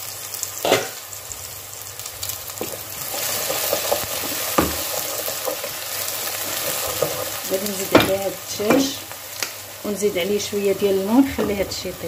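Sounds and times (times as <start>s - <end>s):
onions sizzling in a frying pan: 0.0s - 12.0s
wooden spoon knocking pan: 2.6s - 9.0s.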